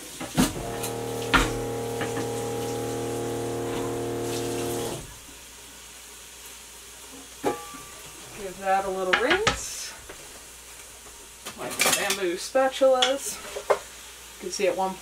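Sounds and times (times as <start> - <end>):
kitchen tap running: 0.0 - 5.3
steady hum: 0.4 - 5.2.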